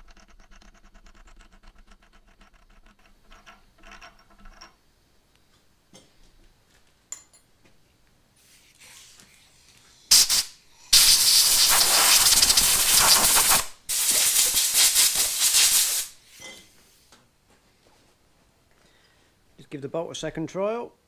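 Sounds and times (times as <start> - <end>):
compressed air blow gun hissing: 10.1 - 16.2.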